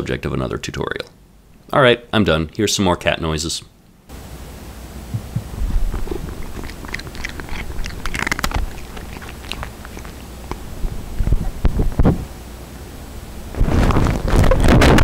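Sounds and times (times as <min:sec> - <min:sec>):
low electrical hum: 0:00.0 - 0:15.0
cat crunching dry food: 0:05.8 - 0:11.4.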